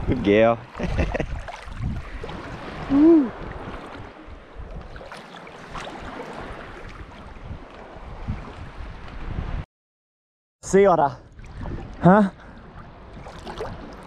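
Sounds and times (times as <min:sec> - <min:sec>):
wind on microphone: 0:00.0 - 0:05.1, 0:05.7 - 0:09.6, 0:11.2 - 0:14.0
seawater sloshing and splashing: 0:00.7 - 0:09.1, 0:11.3 - 0:14.0.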